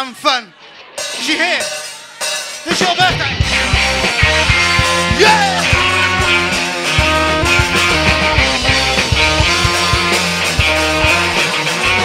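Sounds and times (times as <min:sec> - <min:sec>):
rock band playing: 0:00.0 - 0:12.0
person shouting: 0:05.1 - 0:06.3.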